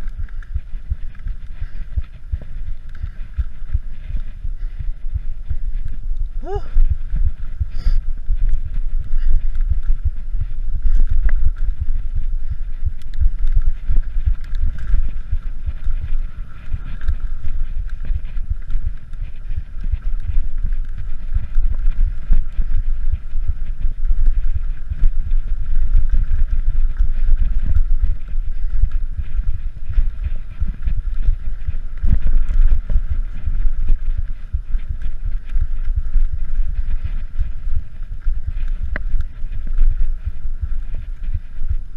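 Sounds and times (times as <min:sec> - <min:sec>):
bike riding rumble: 0:00.0 - 0:41.9
wind noise on microphone: 0:00.0 - 0:41.9.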